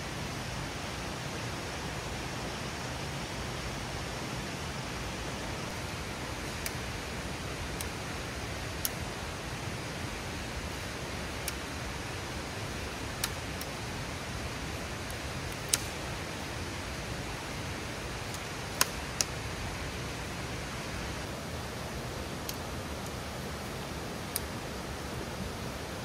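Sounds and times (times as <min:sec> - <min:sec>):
river rushing: 0:00.0 - 0:26.0
sharp clicks: 0:15.5 - 0:15.9, 0:18.3 - 0:19.4.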